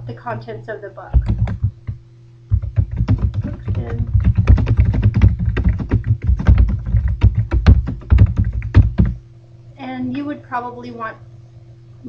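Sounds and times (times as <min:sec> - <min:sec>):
keyboard typing: 0:01.1 - 0:09.2.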